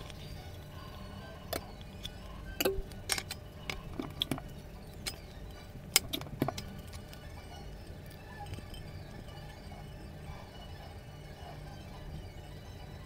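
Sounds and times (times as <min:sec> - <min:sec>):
low steady hum: 0:00.0 - 0:13.0
metallic clicks of cans handled: 0:01.8 - 0:05.3.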